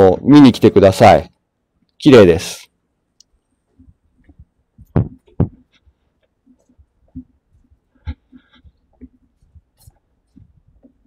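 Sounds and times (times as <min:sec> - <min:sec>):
handheld camera thumps and knocks: 0:04.2 - 0:05.7.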